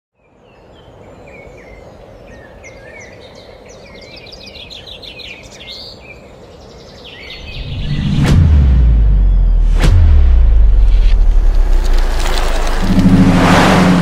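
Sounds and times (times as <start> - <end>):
birds chirping and trilling: 0.2 - 9.8.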